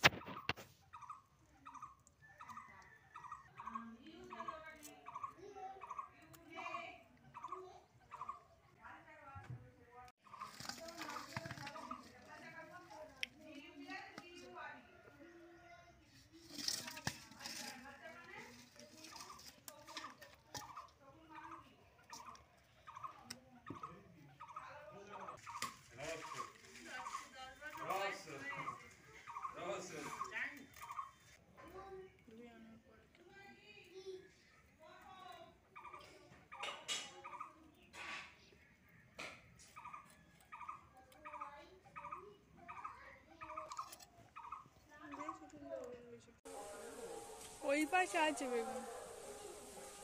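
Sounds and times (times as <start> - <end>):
fowl calling: 46.5 - 50.0.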